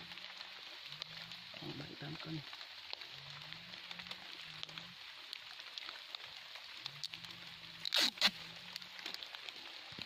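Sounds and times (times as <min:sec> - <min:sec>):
light rain on leaves: 0:00.0 - 0:10.0.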